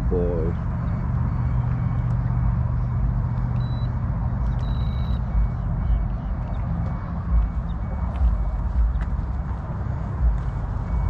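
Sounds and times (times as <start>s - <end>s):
short high beep: 3.6s - 3.9s, 4.6s - 6.0s.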